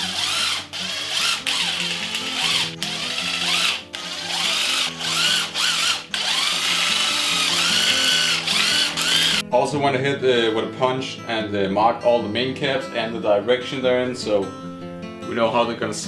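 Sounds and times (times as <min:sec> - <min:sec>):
cordless impact wrench hammering: 0:00.0 - 0:09.4.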